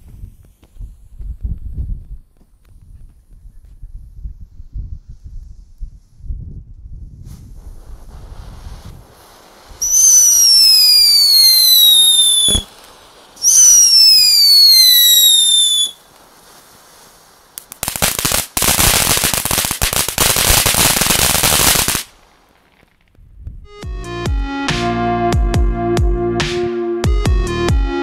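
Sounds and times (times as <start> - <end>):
firework crackling: 0.0 - 3.5, 7.0 - 23.2
firework whistles falling in pitch: 9.7 - 16.0.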